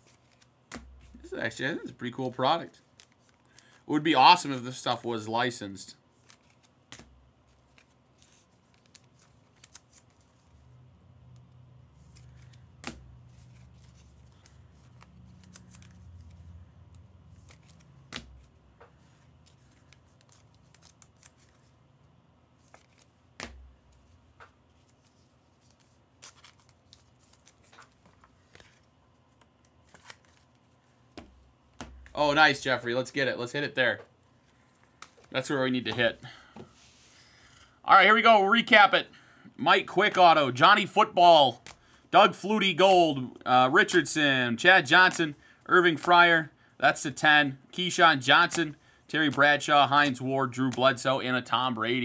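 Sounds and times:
cards sliding and shuffling: 0:00.0 - 0:03.8, 0:06.2 - 0:10.6, 0:11.4 - 0:21.8, 0:22.6 - 0:32.1, 0:34.4 - 0:37.2, 0:41.6 - 0:42.0, 0:45.0 - 0:45.3, 0:48.4 - 0:51.0.

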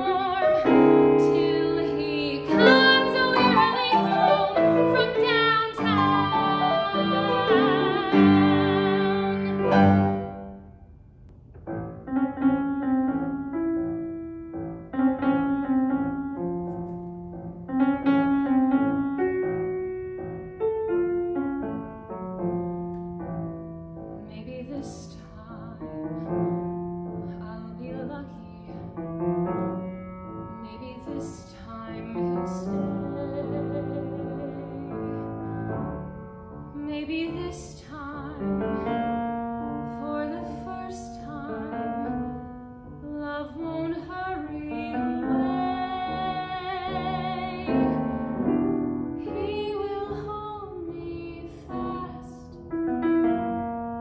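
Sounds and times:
woman singing: 0:00.0 - 0:10.0, 0:24.2 - 0:26.6, 0:27.2 - 0:29.0, 0:30.5 - 0:36.0, 0:36.8 - 0:39.0, 0:39.7 - 0:42.3, 0:43.0 - 0:48.2, 0:49.2 - 0:52.6
piano accompaniment: 0:00.0 - 0:54.0.

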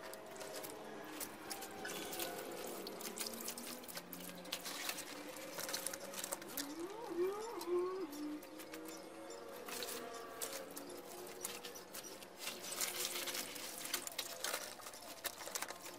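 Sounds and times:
water splashing into a plastic bucket: 0:00.0 - 0:06.7.

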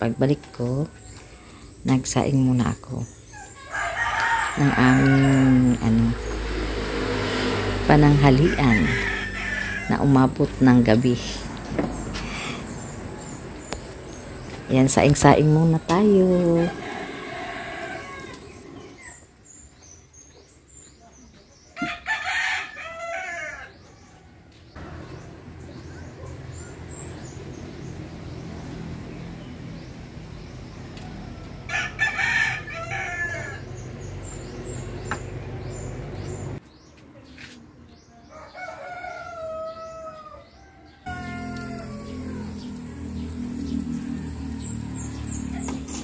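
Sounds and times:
rooster crowing: 0:03.4 - 0:06.0, 0:08.2 - 0:10.2, 0:16.3 - 0:19.2, 0:21.8 - 0:23.8, 0:31.0 - 0:33.7, 0:38.3 - 0:45.3
small birds chirping: 0:08.0 - 0:22.0, 0:33.5 - 0:46.0.

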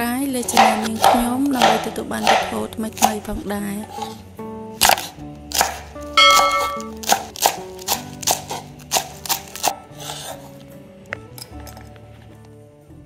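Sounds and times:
background music: 0:00.0 - 0:13.0
knife chopping on wooden board: 0:00.5 - 0:03.2, 0:04.8 - 0:09.8.

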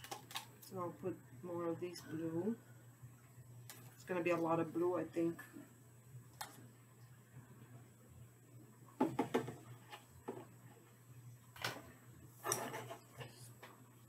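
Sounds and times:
plastic cups knocking on table: 0:09.0 - 0:09.6
cup scraping on table: 0:12.4 - 0:13.4.

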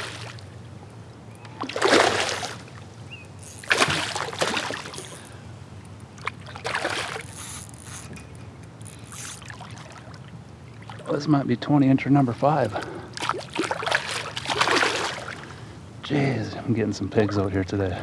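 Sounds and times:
fish splashing at surface: 0:01.6 - 0:02.6, 0:03.6 - 0:05.2, 0:13.2 - 0:15.4.

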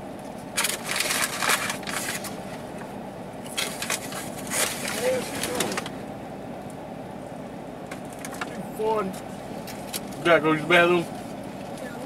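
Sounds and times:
paper packaging crinkling: 0:00.6 - 0:02.4.

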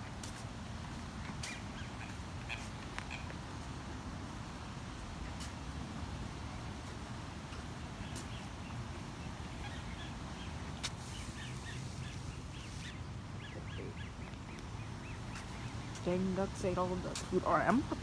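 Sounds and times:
ducks chirping: 0:01.2 - 0:03.4, 0:07.9 - 0:16.4.

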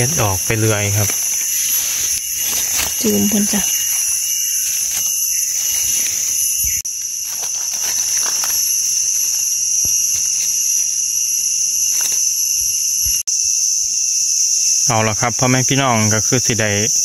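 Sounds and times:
rustling in dry leaf litter: 0:00.0 - 0:13.2
insects droning: 0:00.0 - 0:17.0.

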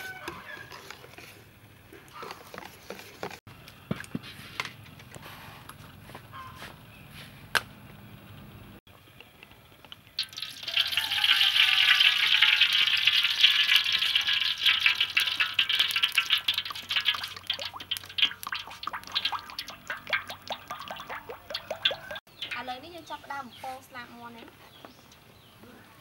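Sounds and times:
oil pouring and gurgling: 0:10.1 - 0:22.6.

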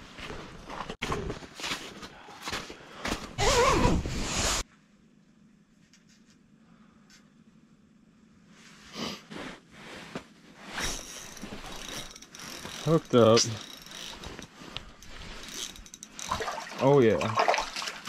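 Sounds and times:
zipper: 0:03.4 - 0:04.6, 0:10.7 - 0:13.0
faint steady hum: 0:04.6 - 0:17.1.

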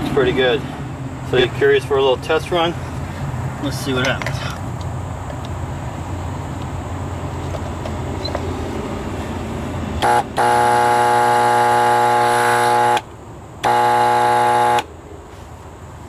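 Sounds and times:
low steady hum: 0:08.6 - 0:16.0
alarm buzzer: 0:10.0 - 0:14.9.

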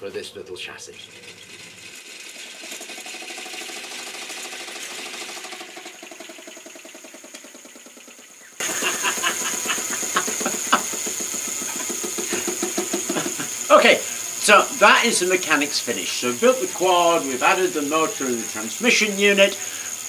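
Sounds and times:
chain and gears clattering: 0:01.0 - 0:08.4
electric motor whine: 0:01.0 - 0:20.0.

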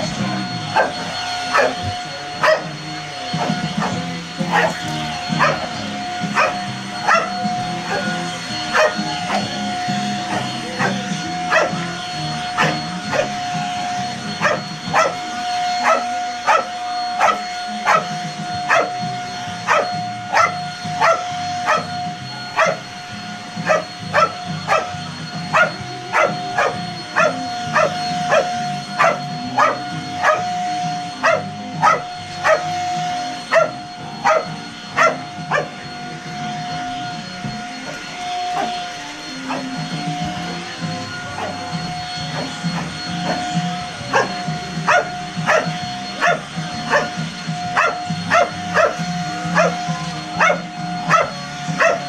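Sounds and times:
vacuum cleaner motor whine: 0:00.0 - 0:52.0
dog barking: 0:00.7 - 0:01.8, 0:02.4 - 0:02.8, 0:03.4 - 0:04.8, 0:05.4 - 0:05.7, 0:06.4 - 0:08.1, 0:08.7 - 0:09.5, 0:10.3 - 0:11.9, 0:12.6 - 0:13.4, 0:14.4 - 0:15.2, 0:15.8 - 0:18.1, 0:18.7 - 0:19.0, 0:19.7 - 0:21.9, 0:22.6 - 0:22.8, 0:23.6 - 0:30.4, 0:31.2 - 0:32.7, 0:33.5 - 0:35.7, 0:44.1 - 0:47.1, 0:47.8 - 0:49.0, 0:49.6 - 0:49.8, 0:50.4 - 0:52.0.

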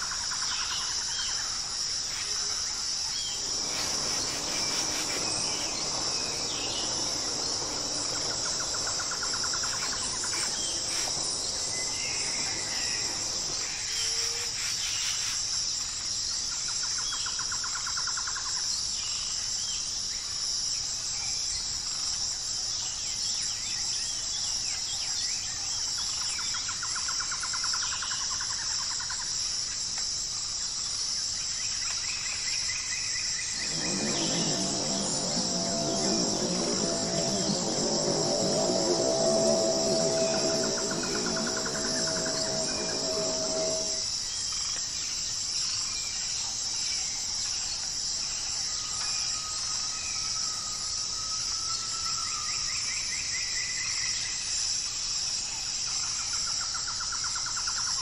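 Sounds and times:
insects droning: 0:00.0 - 0:16.3, 0:33.2 - 0:44.4
low rustling: 0:02.1 - 0:13.9, 0:33.5 - 0:44.0
rapid pulsing trill: 0:33.6 - 0:44.0.

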